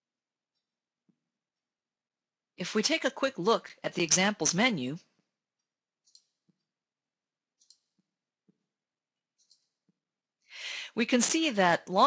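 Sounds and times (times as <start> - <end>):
faint computer mouse clicks: 6.0 - 6.6, 7.6 - 8.0, 9.4 - 9.8.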